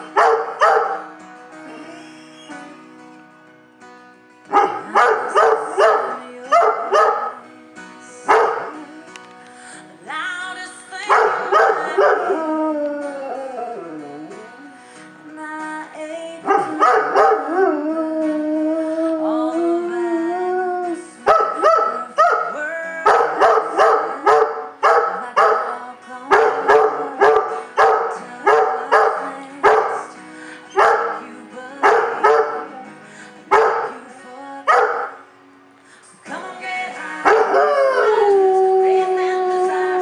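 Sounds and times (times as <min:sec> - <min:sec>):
recorded song playing: 0:00.0 - 0:40.0
dog howling: 0:04.5 - 0:07.4, 0:11.1 - 0:14.6, 0:16.4 - 0:30.1, 0:30.7 - 0:34.0, 0:37.3 - 0:40.0.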